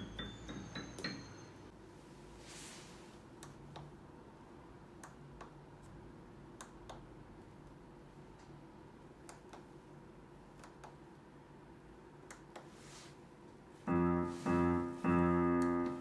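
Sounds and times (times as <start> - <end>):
digital piano run: 0.0 - 1.7, 13.8 - 16.0.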